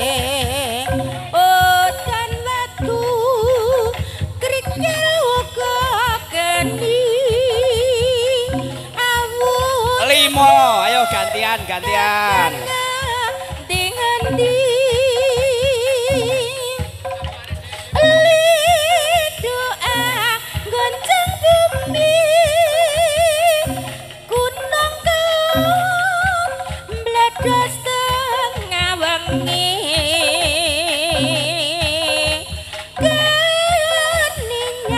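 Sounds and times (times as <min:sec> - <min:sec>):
person singing with vibrato: 0:00.0 - 0:16.9.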